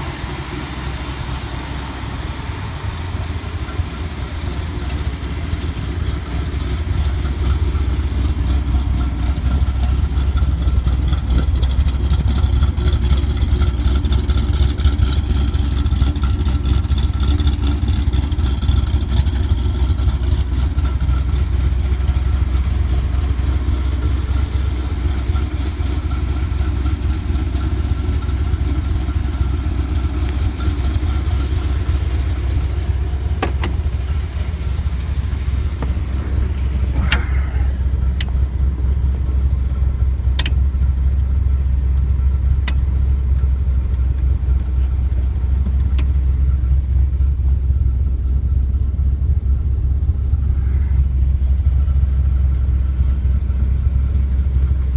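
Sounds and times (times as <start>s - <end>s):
car engine idling: 0.0s - 54.9s
sharp clicks: 40.4s - 40.6s.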